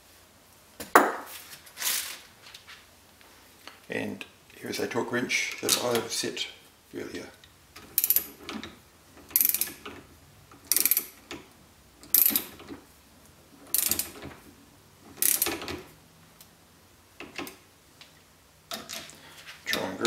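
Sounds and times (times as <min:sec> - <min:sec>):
torque wrench ratchet clicking: 0:07.9 - 0:08.4, 0:09.3 - 0:09.8, 0:10.7 - 0:11.2, 0:12.1 - 0:12.5, 0:13.7 - 0:14.1, 0:15.2 - 0:15.6.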